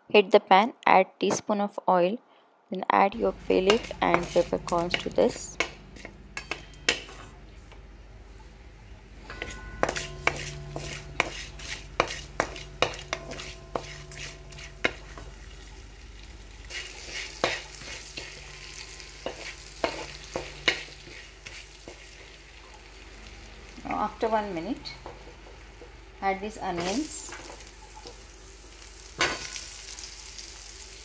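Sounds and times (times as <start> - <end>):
wooden spatula scraping metal pot: 3.2 - 7.4, 9.3 - 15.3, 16.7 - 22.1
oil sizzling: 3.2 - 31.0.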